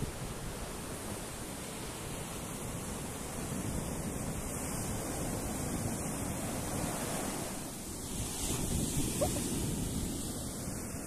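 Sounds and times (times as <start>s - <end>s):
ocean surf on beach: 0.0s - 11.0s.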